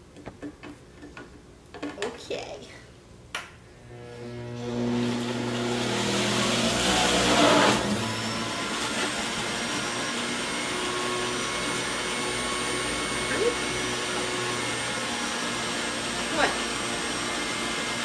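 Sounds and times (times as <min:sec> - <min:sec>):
juicer grinding produce: 0:03.8 - 0:18.0.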